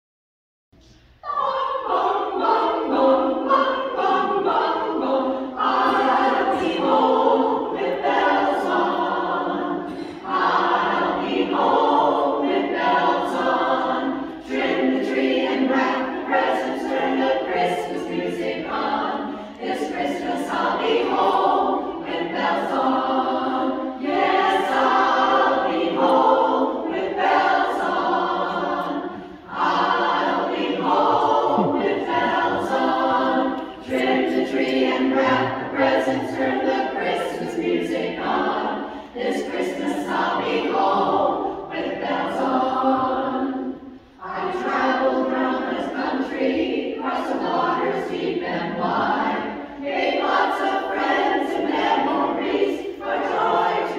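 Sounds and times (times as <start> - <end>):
women's chorus singing a cappella: 0.8 - 53.9.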